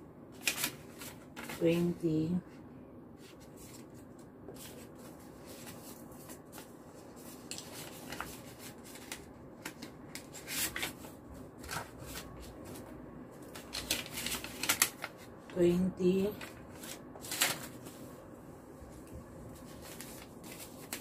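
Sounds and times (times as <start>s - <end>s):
paper rustling and crinkling: 0.3s - 2.0s, 3.2s - 15.6s, 16.3s - 18.2s, 18.8s - 21.0s.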